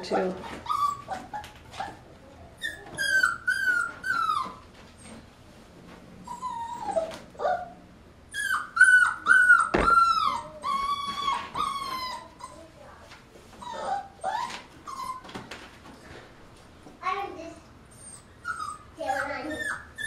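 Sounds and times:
puppy whining: 0:00.4 - 0:05.3, 0:06.2 - 0:15.6, 0:17.8 - 0:20.0
sharp knock: 0:09.7 - 0:10.0.

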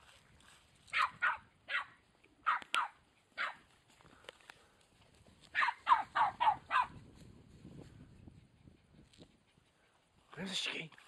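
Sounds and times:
dog barking in sharp yaps: 0:00.9 - 0:03.6, 0:05.5 - 0:07.0.

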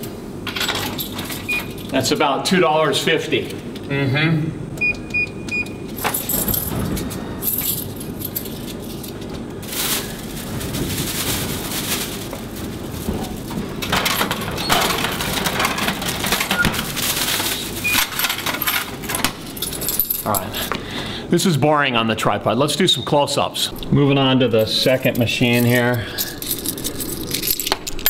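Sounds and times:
plastic bag rustling and crinkling: 0:07.8 - 0:20.6.

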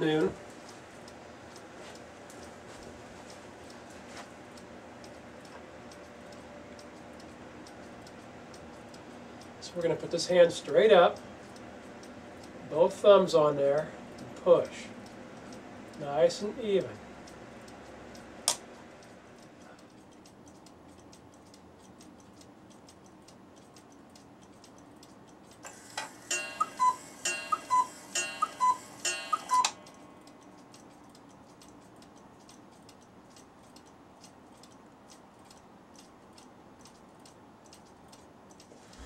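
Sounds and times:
clock ticking: 0:04.5 - 0:39.0
two-note cuckoo calls: 0:26.3 - 0:29.8.

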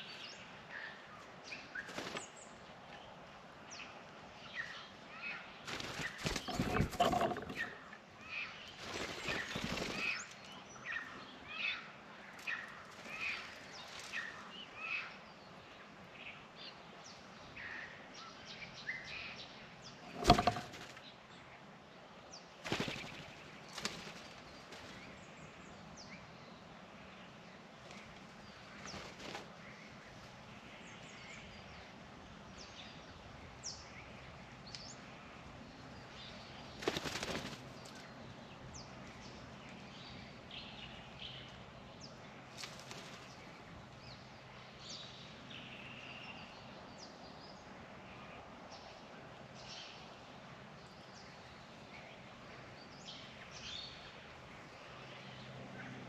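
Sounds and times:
bird wings flapping: 0:01.8 - 0:02.3, 0:05.6 - 0:07.8, 0:08.8 - 0:10.4, 0:22.6 - 0:25.1, 0:28.8 - 0:29.5, 0:36.8 - 0:38.0, 0:42.5 - 0:43.4.

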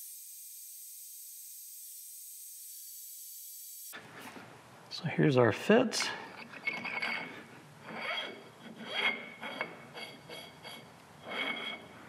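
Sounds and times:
metal shaft rubbing in bushing: 0:06.4 - 0:12.0.

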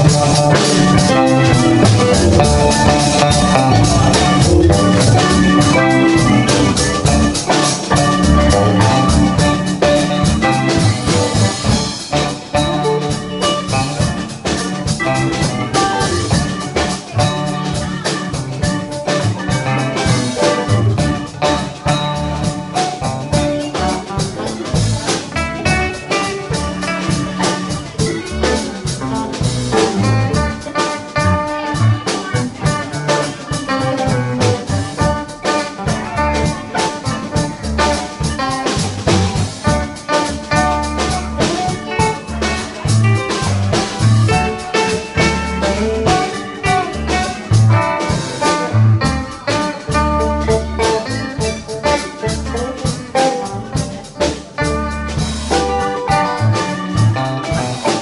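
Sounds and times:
drum beat: 0:00.0 - 0:58.0
electric guitars: 0:00.0 - 0:58.0
keyboard: 0:00.0 - 0:58.0
low bass notes: 0:00.0 - 0:58.0.

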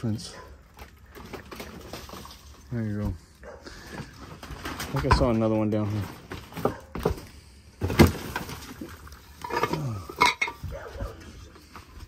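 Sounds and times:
clinks and knocks of debris: 0:04.0 - 0:10.7.

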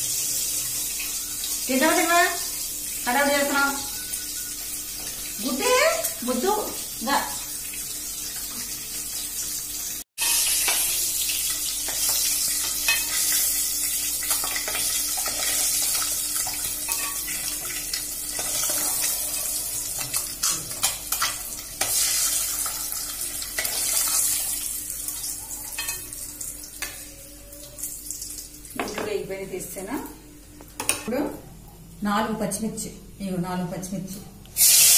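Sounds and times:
eggs sizzling in hot oil: 0:00.0 - 0:27.1, 0:34.6 - 0:34.9.

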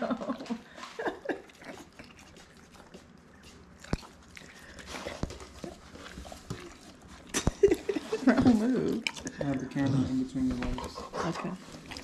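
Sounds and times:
dog sniffing and licking: 0:00.8 - 0:12.0.

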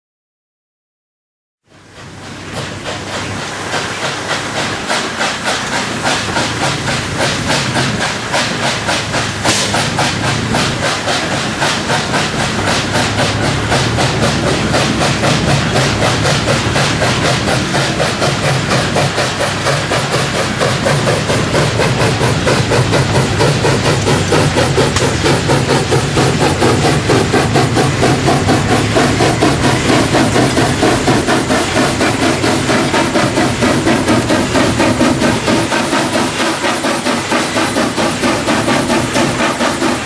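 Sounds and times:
steam locomotive exhaust chuffs: 0:01.6 - 0:40.0.

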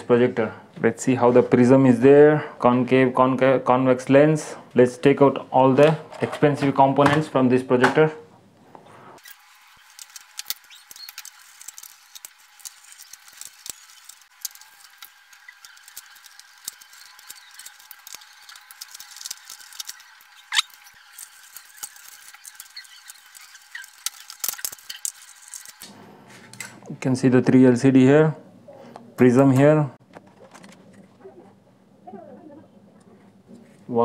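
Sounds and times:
small parts clicking and rattling: 0:09.2 - 0:25.8.

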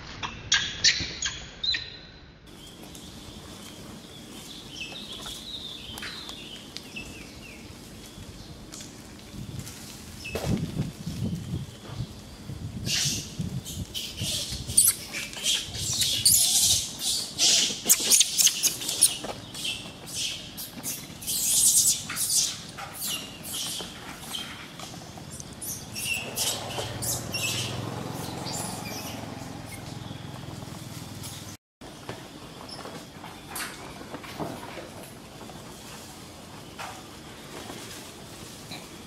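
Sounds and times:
animals chirping and squawking: 0:12.8 - 0:31.6.

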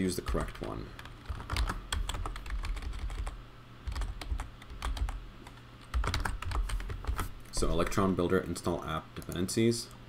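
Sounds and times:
keyboard typing: 0:00.3 - 0:07.3.

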